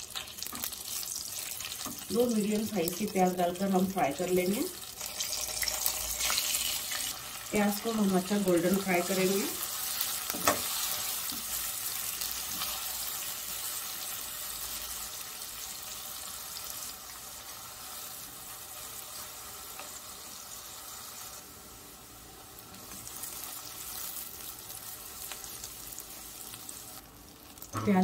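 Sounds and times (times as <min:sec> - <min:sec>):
onions and spices sizzling in oil: 0:00.0 - 0:28.0.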